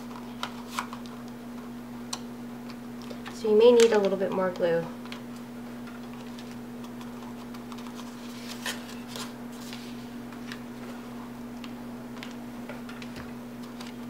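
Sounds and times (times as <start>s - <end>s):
steady low hum: 0.0s - 14.0s
paper rustling: 0.1s - 1.1s, 6.1s - 11.0s.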